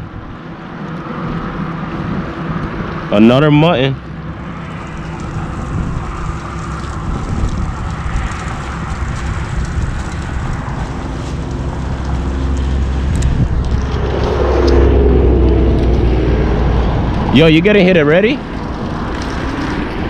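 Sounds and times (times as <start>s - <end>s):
traffic rumble: 0.0s - 20.0s
vehicle engine hum: 0.0s - 20.0s
wind on microphone: 4.0s - 17.8s.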